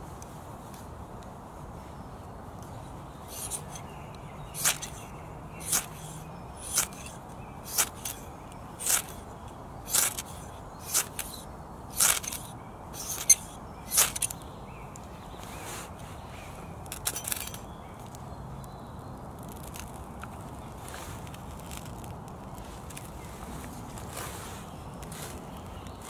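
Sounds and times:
ferro rod scraped with striker: 3.3s - 14.4s, 16.9s - 17.6s.

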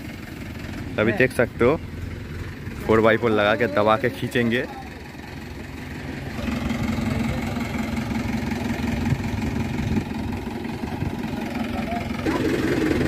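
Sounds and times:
tractor diesel engine idling: 0.0s - 13.0s.

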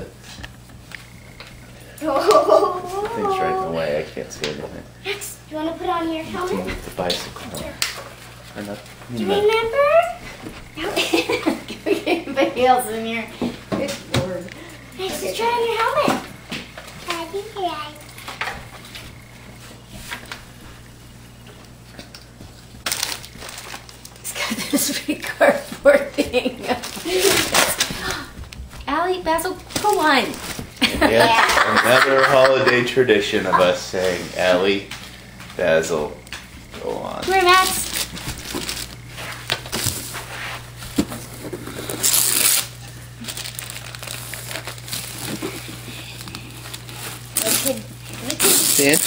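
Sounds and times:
steady low hum: 0.0s - 49.0s
clicks and packaging rustles: 21.6s - 24.3s, 37.3s - 40.2s, 40.8s - 49.0s.

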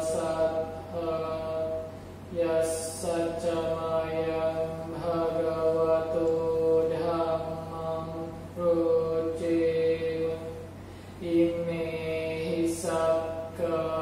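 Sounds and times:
man chanting in monotone: 0.0s - 14.0s.

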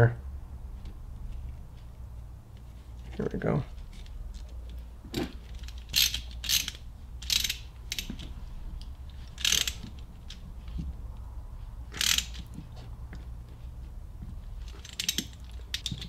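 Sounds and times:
hand ratchet clicking: 5.4s - 10.4s, 11.9s - 12.6s, 14.6s - 16.0s.

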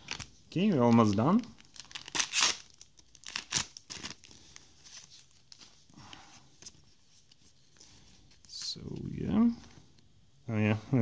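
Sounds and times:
foil pack ripping and crinkling: 1.0s - 4.4s.

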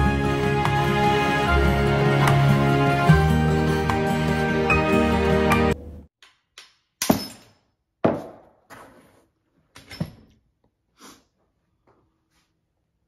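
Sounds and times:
background music: 0.0s - 5.9s.

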